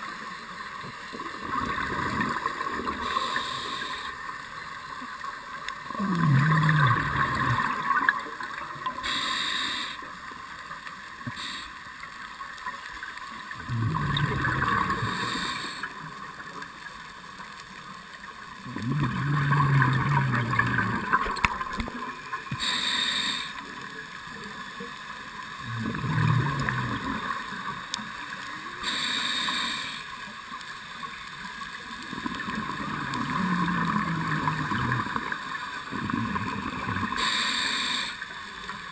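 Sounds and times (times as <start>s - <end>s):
bubbling and hissing: 0.0s - 38.9s
diver breathing through regulator: 3.0s - 4.3s, 9.0s - 10.1s, 11.3s - 11.8s, 13.9s - 16.0s, 22.5s - 23.7s, 28.8s - 30.1s, 36.1s - 38.4s.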